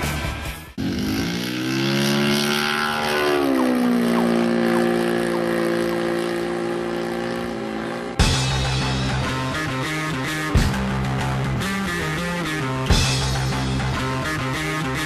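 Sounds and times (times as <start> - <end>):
model plane engine in flight: 0.8 - 8.2.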